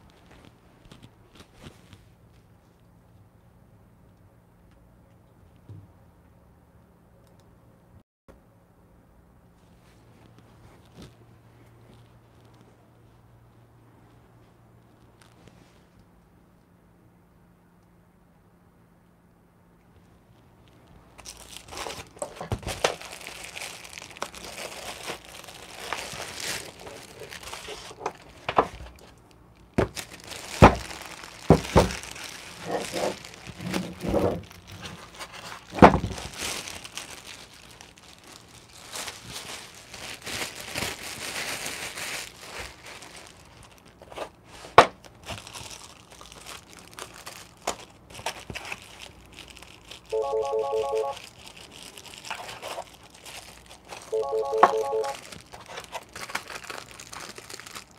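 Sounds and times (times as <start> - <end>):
plastic bag crinkling: 20.2 - 57.9
short electronic tone: 50.2 - 51.2, 54.1 - 55.2.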